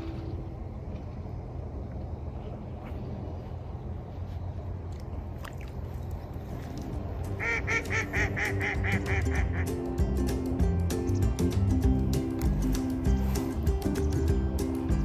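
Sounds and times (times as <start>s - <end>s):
steady low rumble: 0.0s - 15.0s
background music: 7.0s - 15.0s
waterfowl honking calls: 7.3s - 9.8s.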